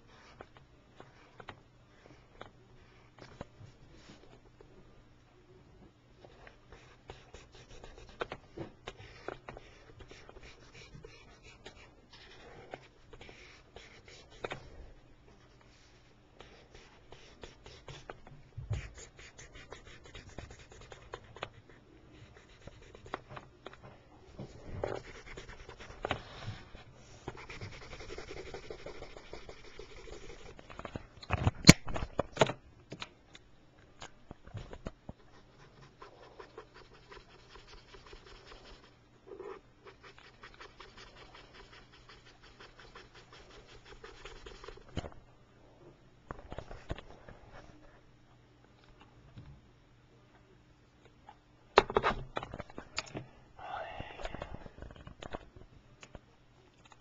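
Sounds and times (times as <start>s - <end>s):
colouring tool scratching on paper: 8.9s - 12.6s, 18.8s - 23.3s, 24.8s - 26.4s, 27.2s - 30.6s, 35.4s - 44.9s.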